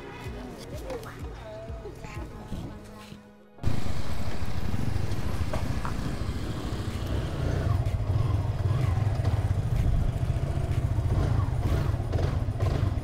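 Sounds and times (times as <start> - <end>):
motorcycle engine rumble: 3.6 - 13.0.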